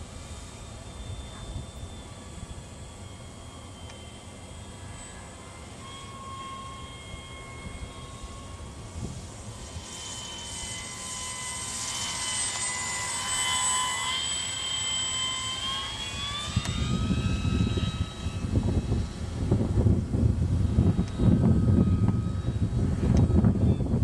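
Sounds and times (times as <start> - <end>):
model gyrocopter motor whining: 0.0 - 24.0
wind rumble on microphone: 7.5 - 9.8, 16.0 - 24.0.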